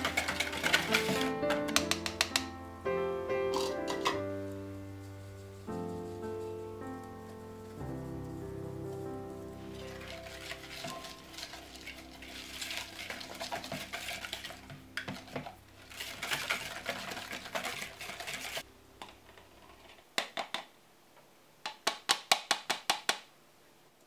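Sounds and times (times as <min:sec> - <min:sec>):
whisk scraping glass bowl: 0:00.0 - 0:01.5, 0:09.7 - 0:18.6
sieve clicking on bowl: 0:00.0 - 0:02.5, 0:03.5 - 0:04.2.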